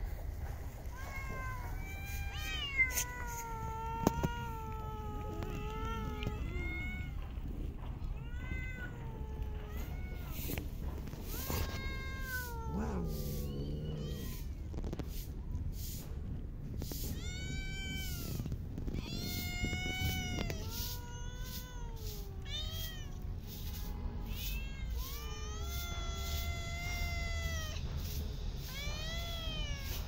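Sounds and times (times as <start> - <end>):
low rumble: 0.0 - 21.0
cats meowing: 0.4 - 30.0.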